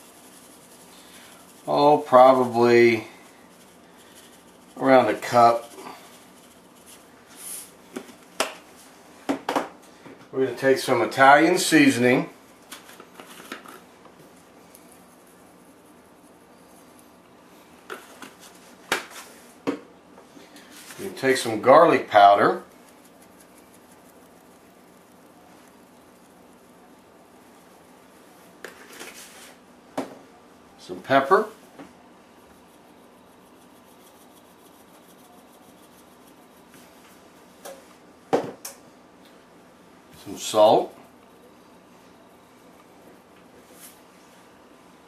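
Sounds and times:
pepper shaker rattling: 0:00.0 - 0:08.4, 0:14.6 - 0:17.2, 0:20.9 - 0:28.1, 0:32.3 - 0:37.0
faint handling sounds: 0:20.2 - 0:30.4.

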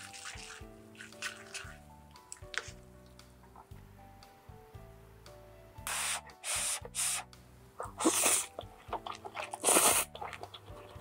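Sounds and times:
person slurping noodles: 0:07.8 - 0:10.5
chewing: 0:07.8 - 0:11.0.

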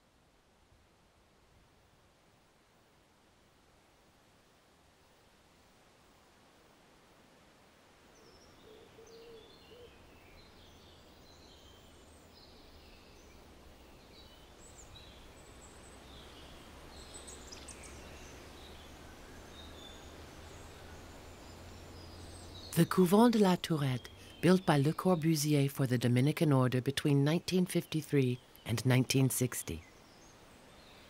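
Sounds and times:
small birds chirping: 0:08.2 - 0:31.0
low steady hum: 0:10.6 - 0:31.0.

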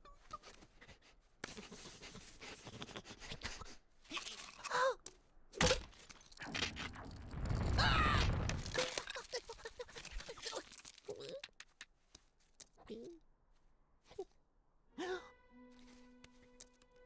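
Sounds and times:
ice cracking rumble: 0:06.2 - 0:11.2.

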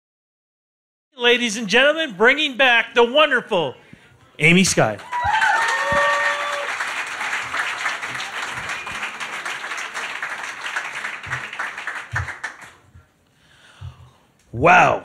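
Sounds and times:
audience applauding: 0:05.0 - 0:12.9.

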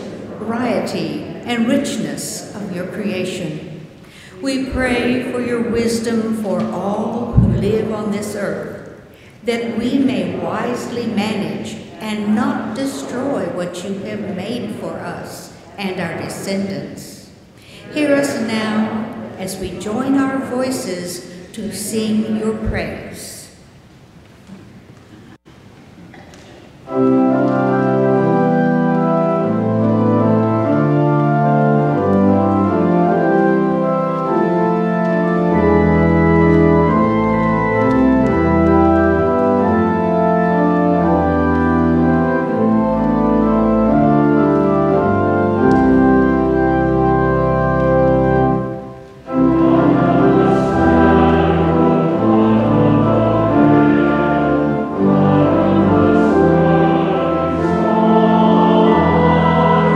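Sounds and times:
voices singing a hymn: 0:17.8 - 0:20.9, 0:48.1 - 0:59.9
church organ playing chords: 0:26.8 - 0:59.9.

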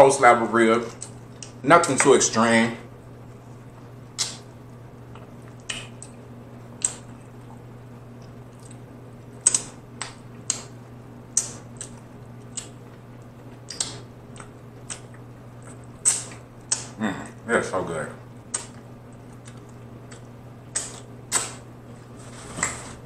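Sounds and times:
wet smacking of eating ribs: 0:03.8 - 0:06.2, 0:06.8 - 0:17.0, 0:18.4 - 0:21.7.

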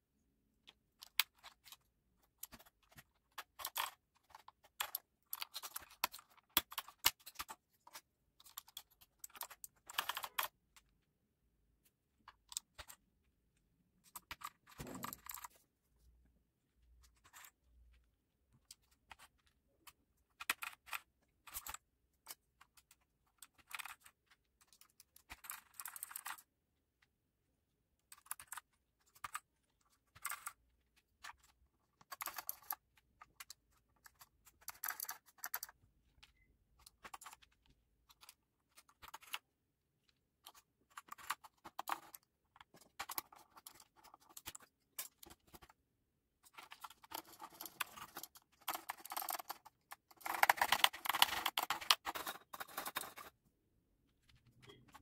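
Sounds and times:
mechanical keyboard typing: 0:08.6 - 0:10.5, 0:46.9 - 0:53.2.

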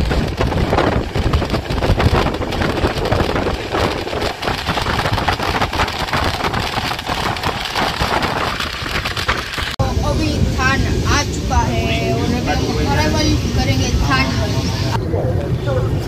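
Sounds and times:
train wheels rumbling and clicking: 0:00.0 - 0:11.5.

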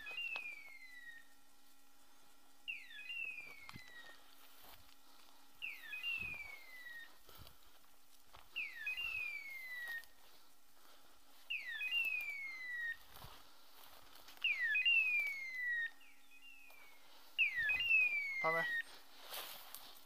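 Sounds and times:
beeper collar chirp and cry: 0:02.7 - 0:04.2, 0:14.4 - 0:19.0
faint footfalls in brush: 0:03.4 - 0:05.4, 0:06.0 - 0:12.4, 0:13.0 - 0:14.6, 0:16.7 - 0:20.0.

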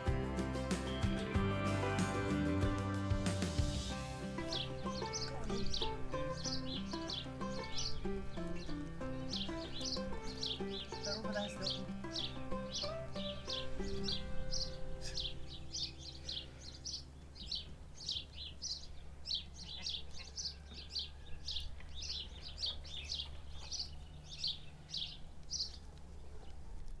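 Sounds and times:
small songbird chirping: 0:00.0 - 0:27.0.

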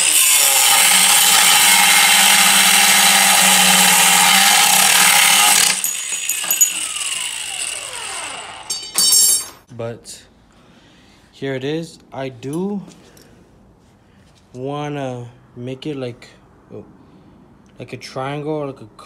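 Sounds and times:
angle grinder cutting metal: 0:00.0 - 0:09.5
metal clink: 0:05.6 - 0:07.3, 0:08.7 - 0:09.6.

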